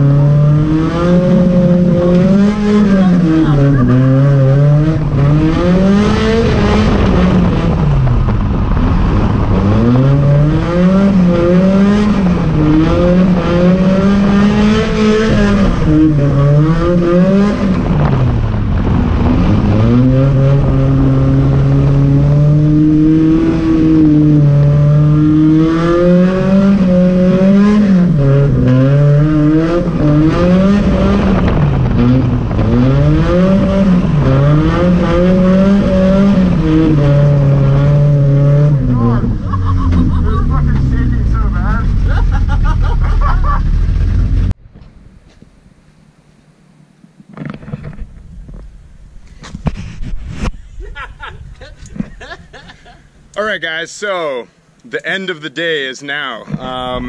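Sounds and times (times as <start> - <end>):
car engine revving: 0.0 - 44.6.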